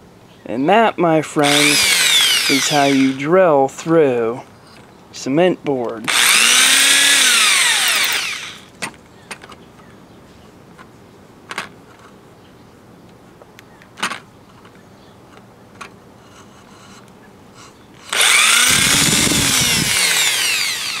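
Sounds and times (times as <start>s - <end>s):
electric drill running: 1.4s - 3.2s, 6.1s - 8.7s, 18.1s - 21.0s.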